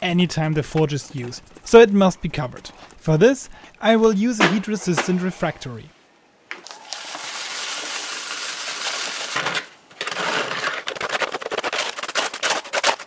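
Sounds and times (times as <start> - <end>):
mix pouring hiss: 6.6 - 9.4.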